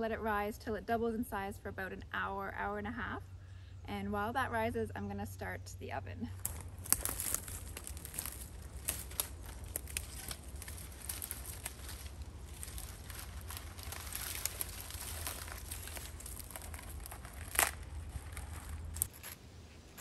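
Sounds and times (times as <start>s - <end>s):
brush rustling: 6.3s - 20.0s
dry twigs snapping: 6.4s - 19.4s.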